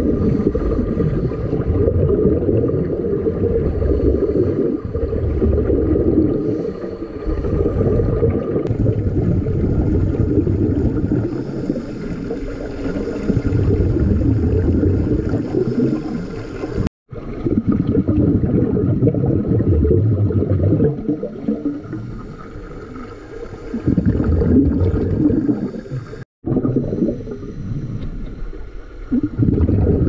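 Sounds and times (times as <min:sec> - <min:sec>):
underwater bubbling and rumbling: 0:00.0 - 0:30.0.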